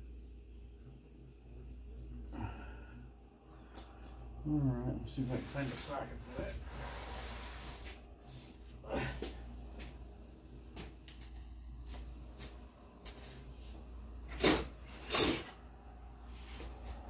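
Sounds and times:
hand tools clinking on metal: 14.4s - 15.7s.

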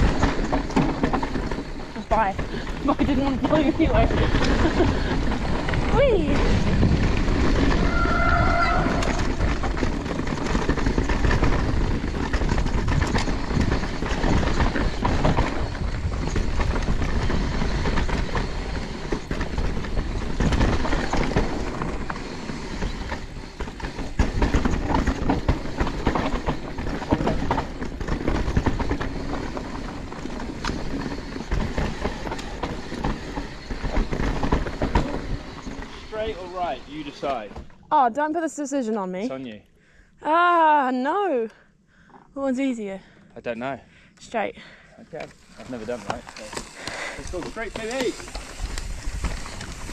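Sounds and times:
bike clattering on bumpy ground: 0.0s - 39.3s, 42.4s - 49.9s
wind rushing over microphone: 2.6s - 22.2s
short high squeal: 7.8s - 9.4s.

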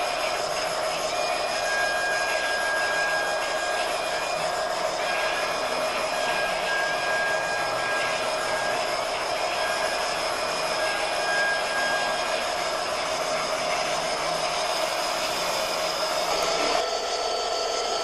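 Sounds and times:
model train whirring hum: 0.0s - 18.0s.

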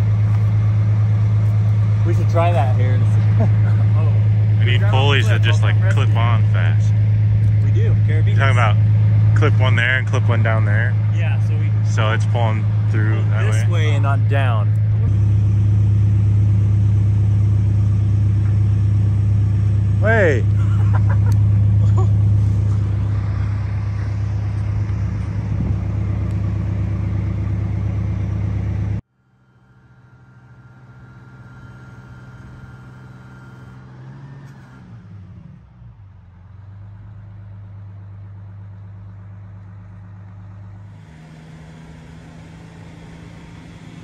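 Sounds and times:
engine hum in truck cab: 0.0s - 44.0s
truck engine loud drone: 0.0s - 44.0s
faint whine: 29.1s - 33.8s.

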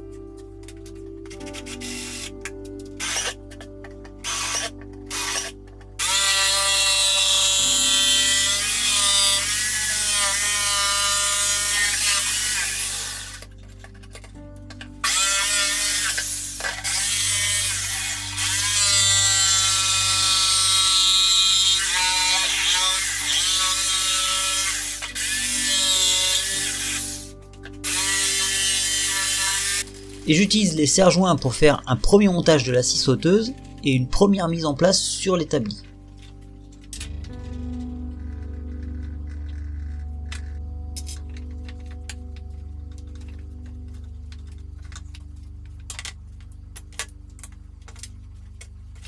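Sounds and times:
drill drilling into wood: 1.6s - 2.3s, 3.0s - 3.4s, 4.2s - 13.4s, 15.0s - 29.9s
jigsaw cutting wood: 3.0s - 3.4s, 4.2s - 13.5s, 15.0s - 30.3s.

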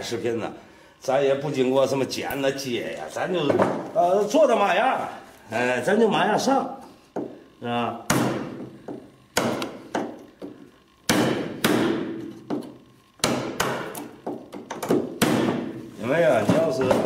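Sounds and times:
chisel struck into wood: 8.1s - 10.2s, 11.1s - 15.8s.

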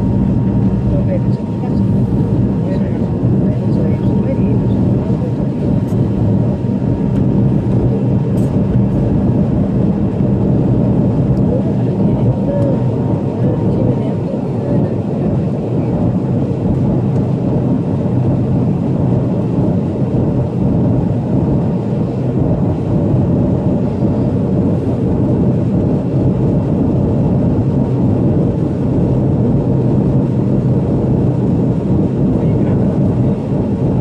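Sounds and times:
faint steady whine: 0.0s - 34.0s
jet engines and rushing air drone: 0.0s - 34.0s.

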